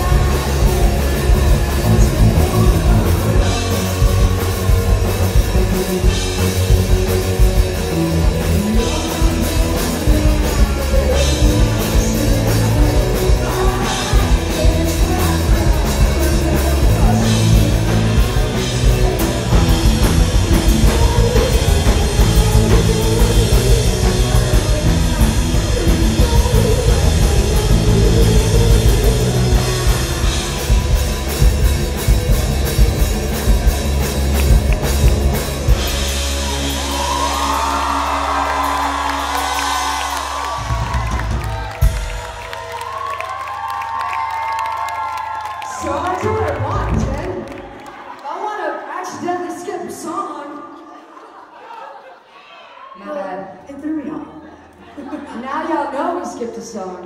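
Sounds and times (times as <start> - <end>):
person singing: 0.0 - 32.1
drum kit beat: 0.0 - 45.0
rock band playing live: 0.0 - 48.1.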